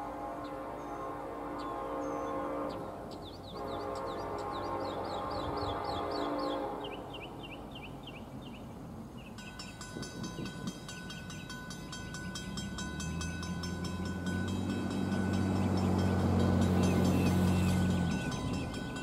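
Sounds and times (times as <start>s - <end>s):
birds chirping: 0.3s - 19.0s
bell ringing rapidly: 9.4s - 19.0s
locomotive diesel engine drone: 12.1s - 19.0s.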